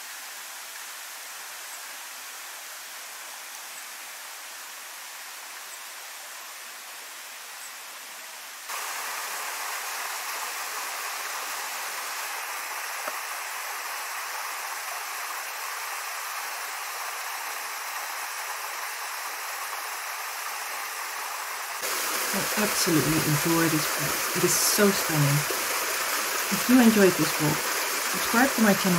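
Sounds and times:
waterfall rushing into pool: 0.0 - 6.9, 8.6 - 28.9
water splashing over rocks: 8.7 - 20.1, 21.2 - 28.9.

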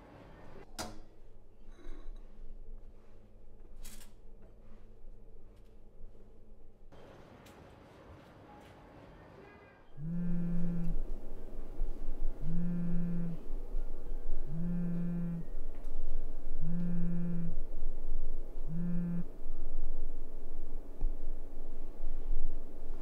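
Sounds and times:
mobile phone vibrating: 10.0 - 11.1, 12.4 - 13.4, 14.4 - 15.5, 16.6 - 17.6, 18.7 - 19.3.

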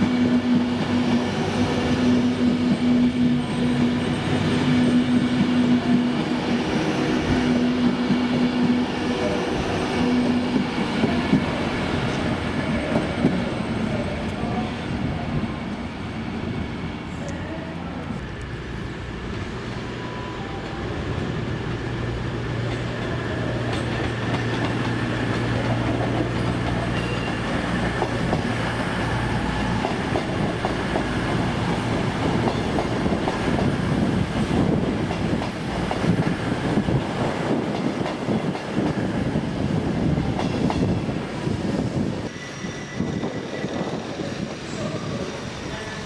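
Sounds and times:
train wheels clattering: 23.6 - 33.8.

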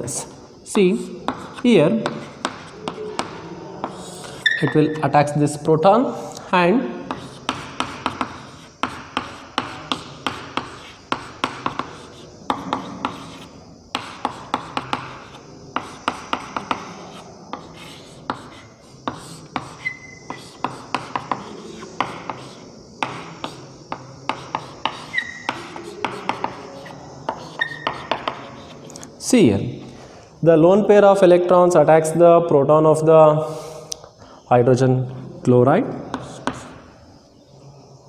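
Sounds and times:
chalk tapping and scratching: 1.2 - 4.8, 7.0 - 29.1, 36.1 - 36.8
high chalk squeak: 1.3 - 5.1, 7.1 - 28.9.

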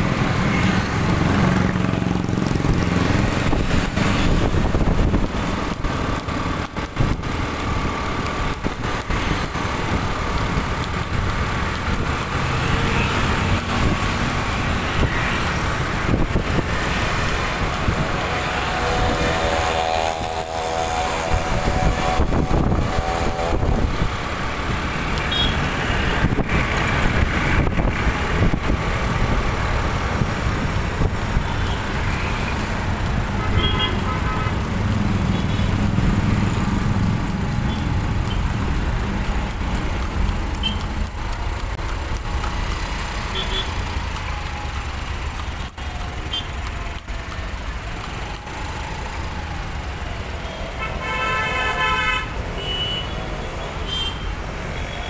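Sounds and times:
traffic rumble: 0.0 - 55.0
vehicle horns honking: 18.2 - 23.9, 25.2 - 26.0, 33.3 - 34.7, 40.6 - 40.8, 43.3 - 43.8, 46.3 - 46.6, 50.4 - 55.0.

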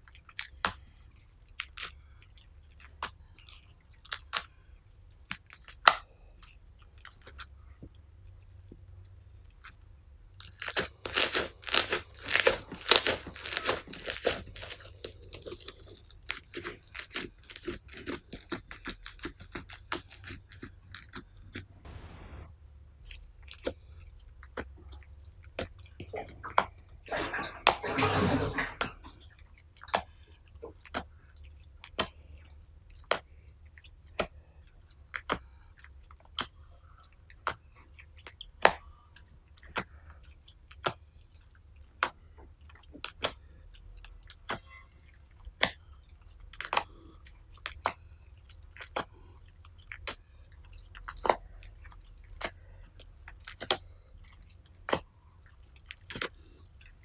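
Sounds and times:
slime squishing: 0.0 - 57.0
stretched slime popping: 10.4 - 22.2.

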